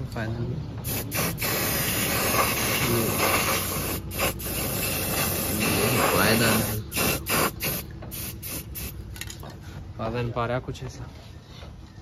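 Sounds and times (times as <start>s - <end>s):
spray paint can hissing: 0.8s - 9.0s.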